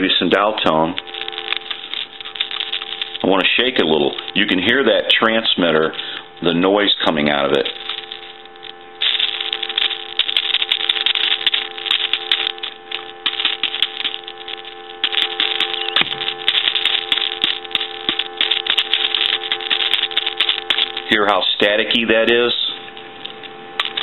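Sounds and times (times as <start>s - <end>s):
crackling static: 0.0s - 24.0s
telephone dial tone: 1.0s - 4.6s.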